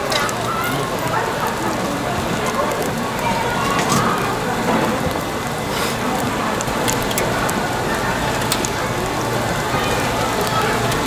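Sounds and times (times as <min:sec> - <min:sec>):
dumplings sizzling in oil: 0:00.0 - 0:11.0
small crackling pops: 0:00.1 - 0:09.2.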